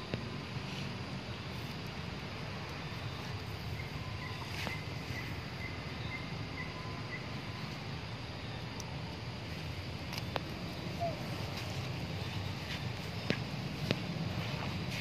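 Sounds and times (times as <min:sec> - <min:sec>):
outdoor background noise: 0:00.0 - 0:15.0
faint high chirps: 0:10.6 - 0:11.8.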